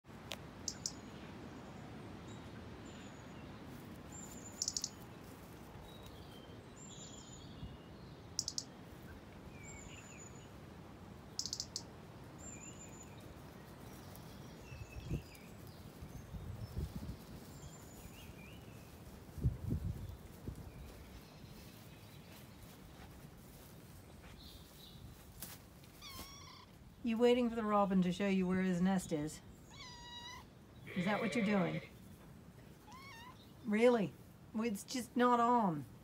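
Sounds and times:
robin alarm calls: 0:00.6 - 0:01.2, 0:04.2 - 0:05.0, 0:08.4 - 0:08.8, 0:11.3 - 0:11.9, 0:29.5 - 0:31.9
birds chirping: 0:00.6 - 0:10.6, 0:11.2 - 0:19.1, 0:19.9 - 0:23.2, 0:26.0 - 0:35.9.

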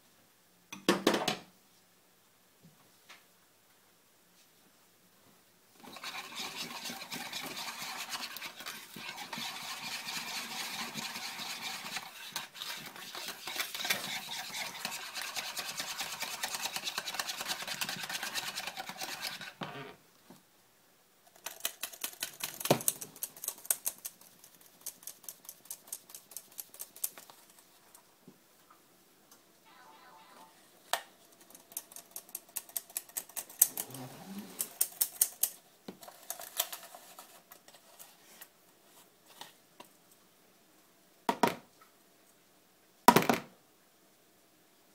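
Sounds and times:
whisk scraping a plastic bowl: 0:05.8 - 0:19.6.

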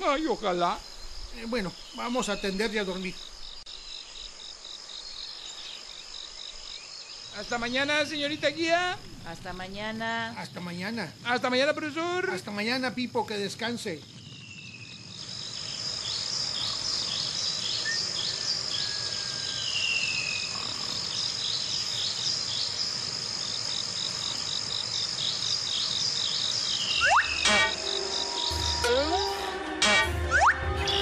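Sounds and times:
crickets trilling: 0:00.0 - 0:29.5
insect chirps: 0:00.0 - 0:29.6
falling whistled calls: 0:14.1 - 0:20.8, 0:25.2 - 0:31.0
cartoon music with slide whistle: 0:27.0 - 0:31.0.

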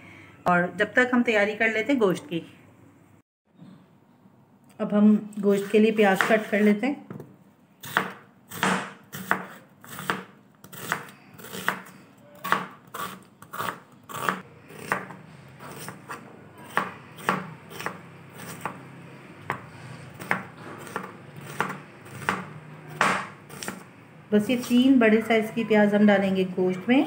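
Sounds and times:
knife slicing onion on board: 0:05.5 - 0:06.8, 0:07.8 - 0:18.8, 0:19.5 - 0:23.8.

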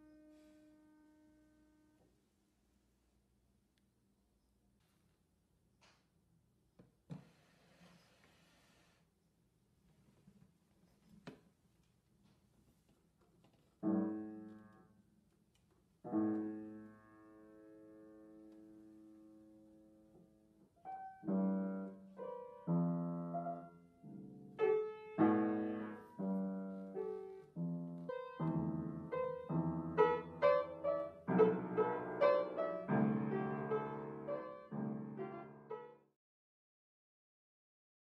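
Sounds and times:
piano chords: 0:13.8 - 0:15.0, 0:16.0 - 0:36.1.

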